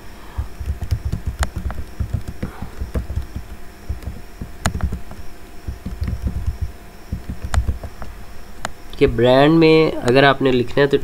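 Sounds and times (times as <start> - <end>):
typing on a computer keyboard: 0.5 - 8.1.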